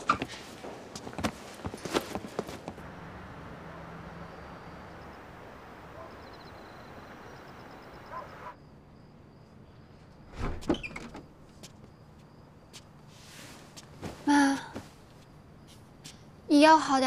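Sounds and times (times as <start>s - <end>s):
distant town noise: 0.0s - 17.0s
faint high whine: 2.8s - 10.5s
faint insect chirps: 2.8s - 13.9s.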